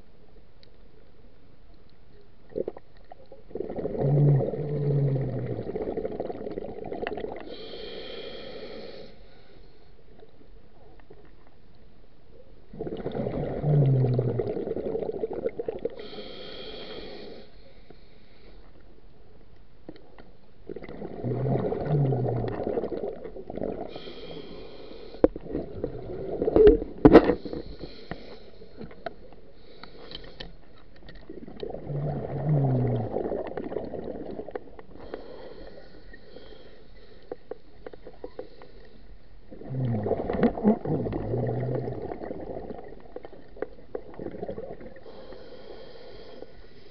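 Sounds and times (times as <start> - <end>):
bubbling diver exhalations: 3.5 - 7.6, 12.7 - 16.5, 20.7 - 24.3, 31.3 - 34.5, 39.5 - 43.1
regulator inhalation hiss: 7.4 - 9.9, 16.0 - 18.7, 23.9 - 25.3, 27.3 - 28.9, 35.0 - 37.4, 45.0 - 46.9.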